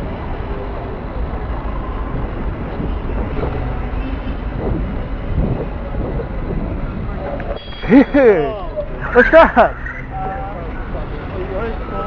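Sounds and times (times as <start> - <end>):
wind rumble on microphone: 0.0 - 7.6
street traffic: 0.0 - 12.0.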